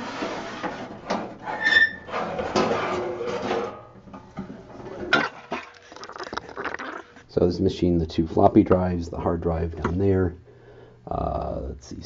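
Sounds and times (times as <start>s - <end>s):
short squeak: 1.5s - 2.1s.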